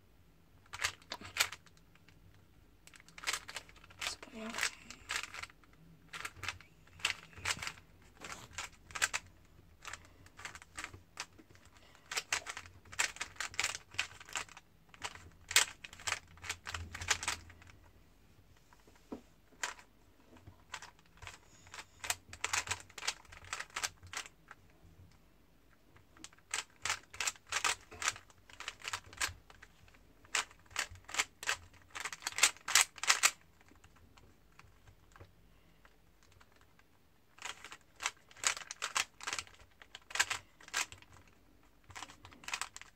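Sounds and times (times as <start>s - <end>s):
puzzle cube clicking as turned: 0.7s - 2.2s, 2.9s - 17.7s, 19.6s - 19.8s, 20.7s - 24.3s, 26.2s - 33.8s, 36.2s - 36.8s, 37.4s - 42.9s.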